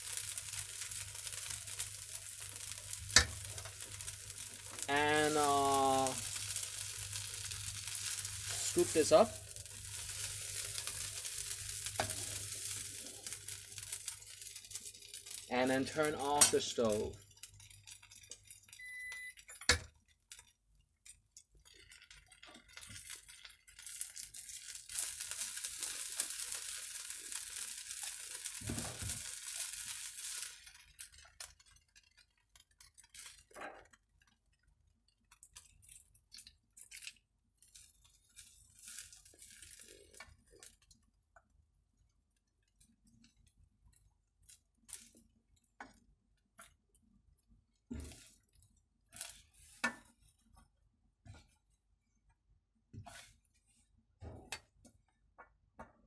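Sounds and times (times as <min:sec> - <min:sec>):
steady hiss: 0:00.0 - 0:14.0
spatula scraping in a wok: 0:52.9 - 0:53.4.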